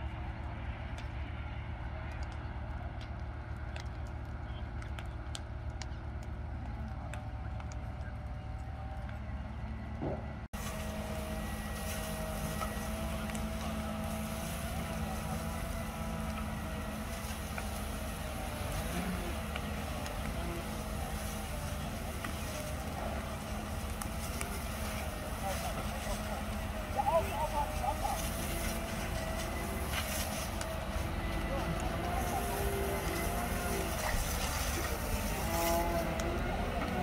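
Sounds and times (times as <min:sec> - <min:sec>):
diesel engine running: 0:00.0 - 0:37.0
sharp crackles: 0:00.2 - 0:09.7, 0:10.6 - 0:37.0
fire hose water jet hiss: 0:10.6 - 0:36.2.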